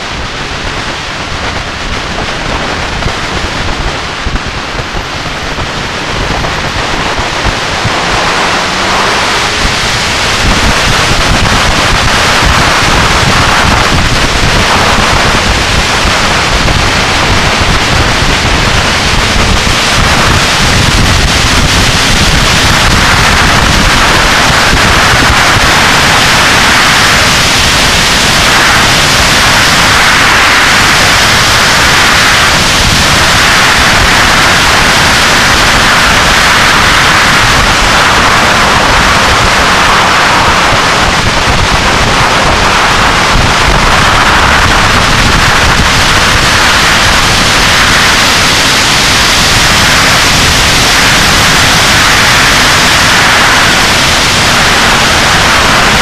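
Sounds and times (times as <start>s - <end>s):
wind rush on microphone: 0.0s - 56.0s.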